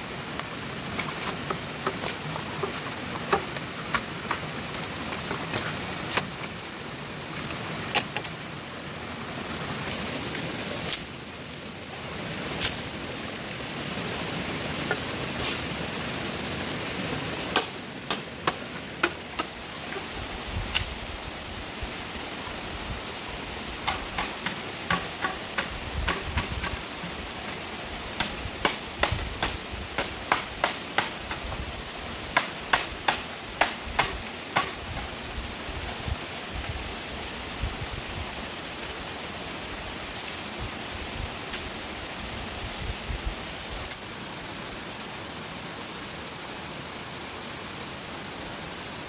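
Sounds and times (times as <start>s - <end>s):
background hiss: 0.0s - 49.0s
hand tool knocking bamboo: 1.0s - 4.5s, 23.8s - 26.8s, 28.2s - 31.4s, 32.4s - 34.8s.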